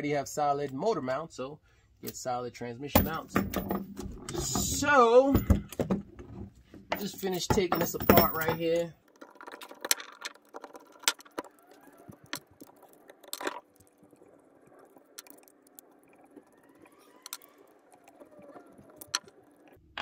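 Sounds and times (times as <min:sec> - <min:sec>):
metal parts clicking and clinking: 0:06.9 - 0:13.6.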